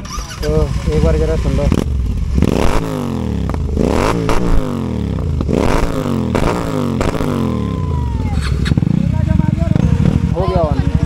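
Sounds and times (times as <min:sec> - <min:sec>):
exhaust pops and crackles: 0:00.0 - 0:07.4
motorcycle engine revving: 0:00.0 - 0:11.0.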